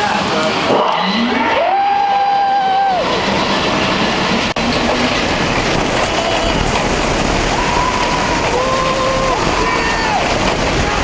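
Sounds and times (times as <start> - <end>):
riders screaming: 0.0 - 3.7, 6.0 - 11.0
wheels rattling on track: 0.0 - 11.0
rush of wind: 2.8 - 11.0.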